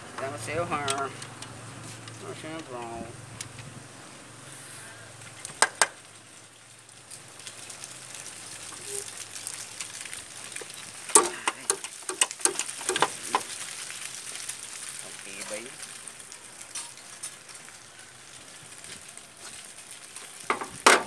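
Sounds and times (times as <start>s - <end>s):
sharp metal clicks and knocks: 5.4s - 6.0s, 10.6s - 13.5s.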